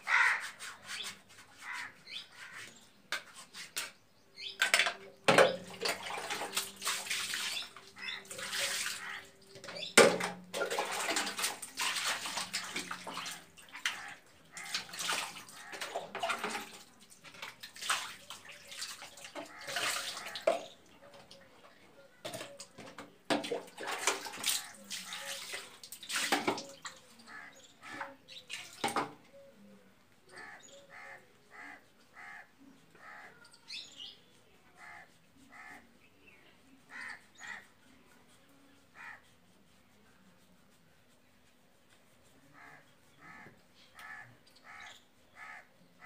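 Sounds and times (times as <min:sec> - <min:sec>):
water splashing on tiled floor: 0:04.6 - 0:21.0, 0:22.2 - 0:29.2.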